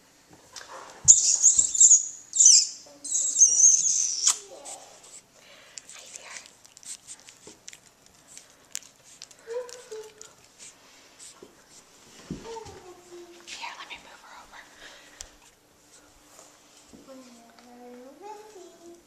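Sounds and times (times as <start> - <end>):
puppies squealing and yipping: 1.0 - 4.4.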